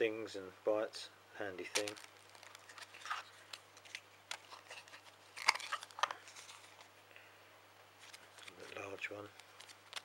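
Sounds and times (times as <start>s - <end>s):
plastic wrappers crinkling: 1.6s - 6.9s, 8.0s - 10.0s.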